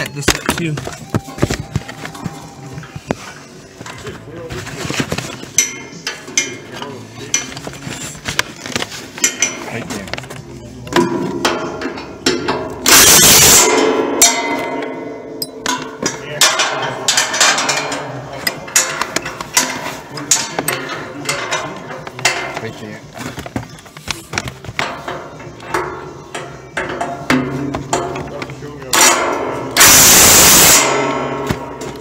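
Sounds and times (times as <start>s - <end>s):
background music: 5.4s - 32.0s
loud burst of noise: 12.9s - 13.8s, 29.8s - 31.4s.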